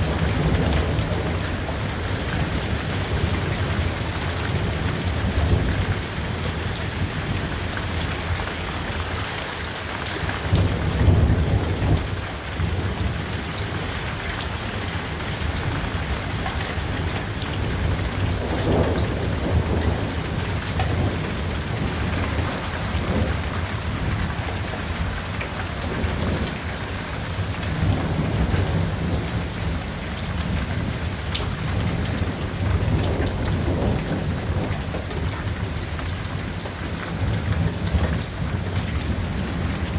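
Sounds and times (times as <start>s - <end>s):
heavy rain: 0.0s - 39.9s
rolling thunder: 16.5s - 26.7s, 27.4s - 36.0s.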